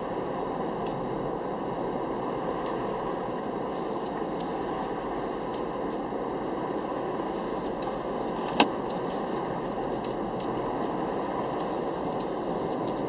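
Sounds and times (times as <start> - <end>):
road and tyre noise in car: 0.0 - 13.0
faint ticks: 11.6 - 13.0.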